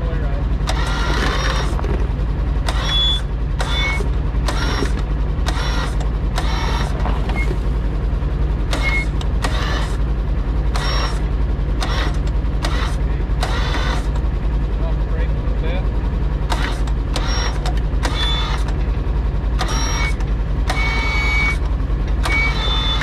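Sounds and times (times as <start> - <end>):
engine idling: 0.0 - 23.0.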